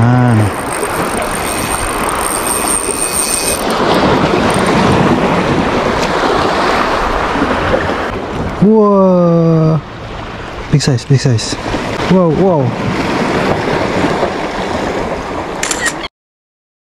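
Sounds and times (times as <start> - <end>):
wind on microphone: 0.0 - 8.6
waves washing against rocks: 0.2 - 8.4, 11.6 - 15.5.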